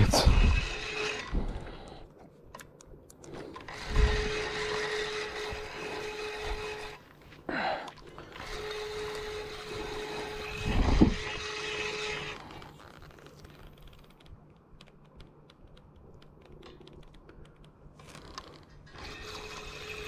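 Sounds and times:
fishing reel gears whirring: 0.0 - 1.5.

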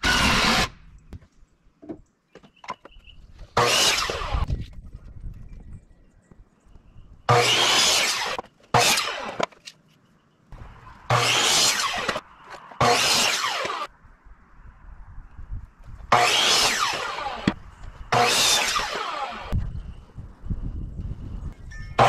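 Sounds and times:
power saw cutting wood: 0.0 - 0.8, 3.6 - 4.5, 7.3 - 9.5, 11.1 - 13.9, 16.1 - 19.6.

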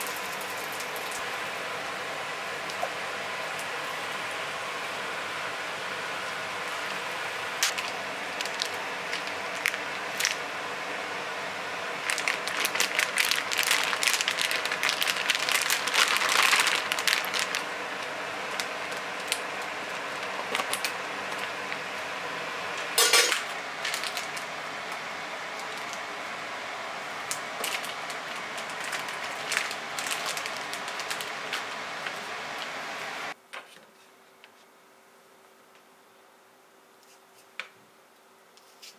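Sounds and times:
steady low hum: 0.0 - 33.4
plastic bag crinkling: 7.6 - 10.4, 12.0 - 21.6, 23.8 - 24.5, 25.5 - 26.0, 27.6 - 32.2
utensils and dishes clinking: 23.0 - 23.5.

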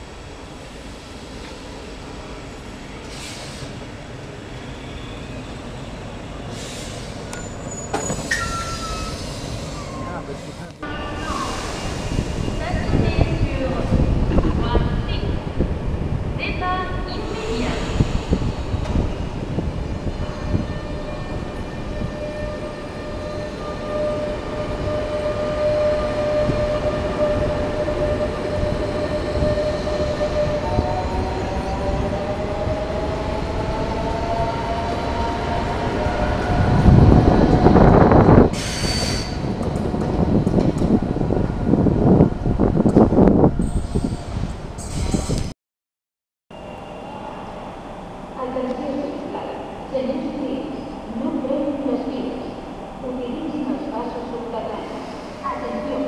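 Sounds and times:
train wheels rumbling on rails: 0.0 - 45.5.

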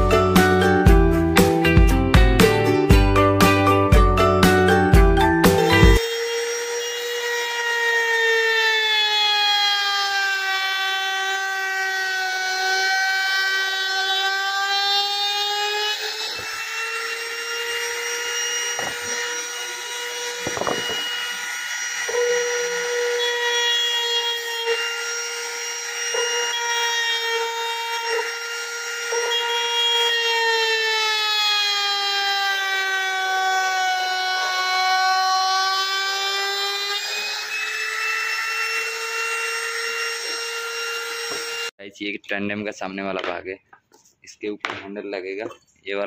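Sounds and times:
trim router whining: 4.2 - 41.8.

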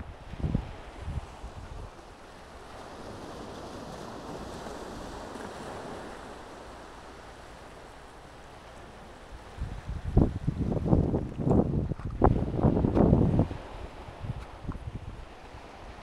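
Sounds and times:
wind buffeting microphone: 0.0 - 2.0, 9.3 - 16.0
surf washing onto shore: 0.0 - 16.0.

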